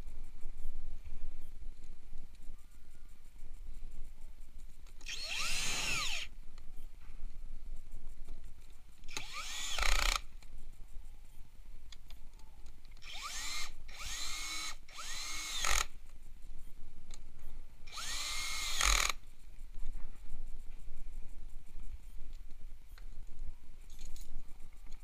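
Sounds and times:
cordless drill driving bolts: 0:05.1 - 0:06.3, 0:09.1 - 0:10.2, 0:13.0 - 0:15.9, 0:17.9 - 0:19.2.

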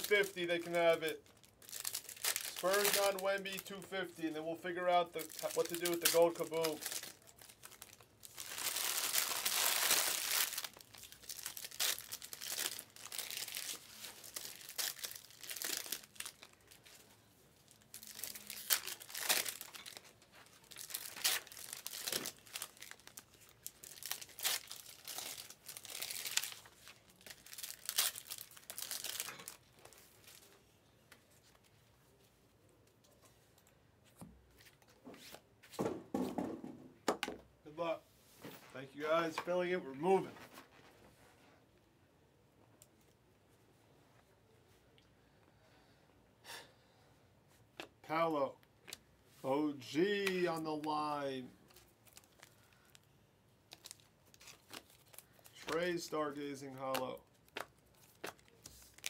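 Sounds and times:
card pack wrappers tearing: 0:00.0 - 0:03.8, 0:05.1 - 0:16.9, 0:17.7 - 0:29.8, 0:53.7 - 0:56.2, 0:56.8 - 0:59.0
cards handled and stacked: 0:56.8 - 0:59.0.

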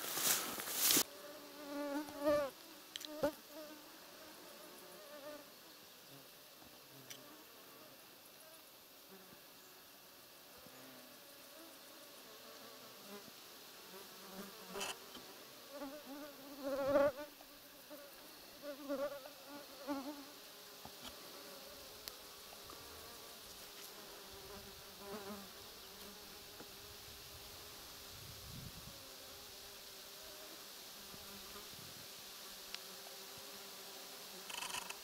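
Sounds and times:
flying insect buzzing: 0:00.0 - 0:35.0.

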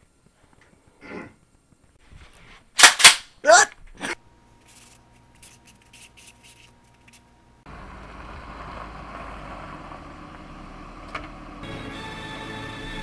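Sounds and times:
faint scratching and clicking: 0:04.6 - 0:07.3
car moving rumble: 0:07.7 - 0:11.6.

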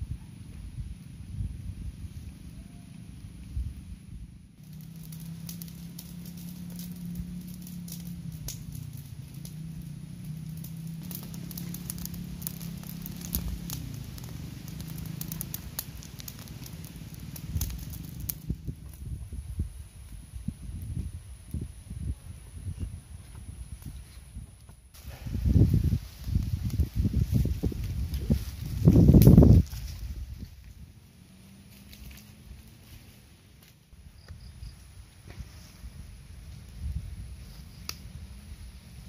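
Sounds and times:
low hum: 0:00.0 - 0:23.8
wood fire crackling and popping: 0:04.6 - 0:21.7, 0:24.6 - 0:34.4, 0:36.0 - 0:39.0.

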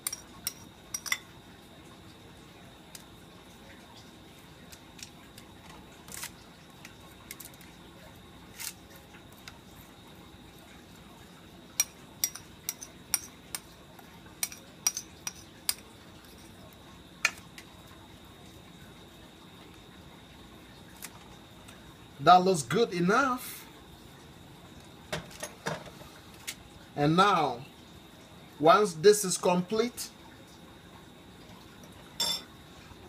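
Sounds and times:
metal spoon clinking on ceramic bowl: 0:00.0 - 0:01.3, 0:11.8 - 0:13.7, 0:14.4 - 0:15.8, 0:32.2 - 0:32.5.

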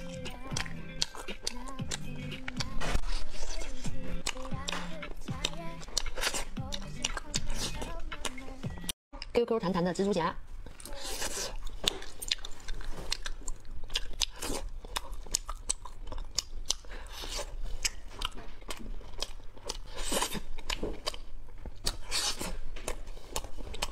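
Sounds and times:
chewing candy close up: 0:05.4 - 0:08.4, 0:10.6 - 0:23.9.

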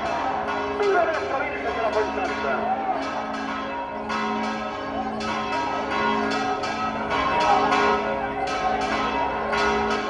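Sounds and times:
crowd voices: 0:00.0 - 0:04.2, 0:07.0 - 0:09.6
church bells pealing: 0:00.0 - 0:10.0.

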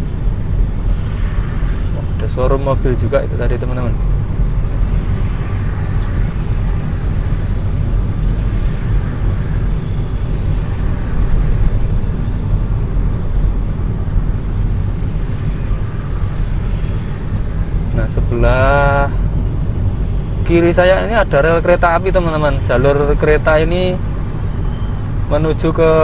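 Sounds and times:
car road and engine noise: 0:00.0 - 0:26.0.

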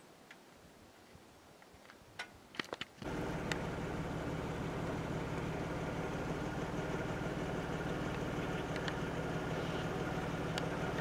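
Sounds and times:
vehicle engine idling: 0:03.0 - 0:11.0
faint clicks: 0:08.1 - 0:09.0.

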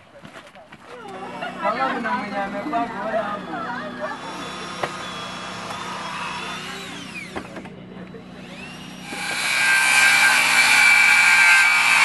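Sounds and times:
cordless drill whining: 0:01.1 - 0:07.7
circular saw cutting timber: 0:01.1 - 0:12.0.

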